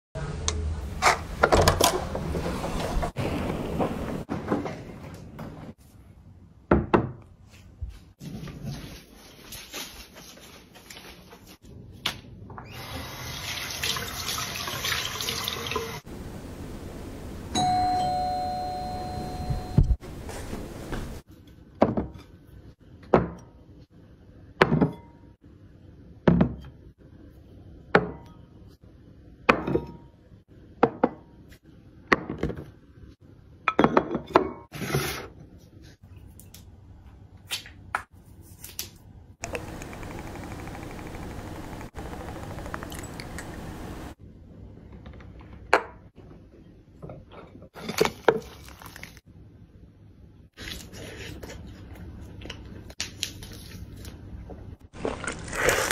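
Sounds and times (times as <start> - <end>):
two-tone doorbell chime: 17.6 - 20.0.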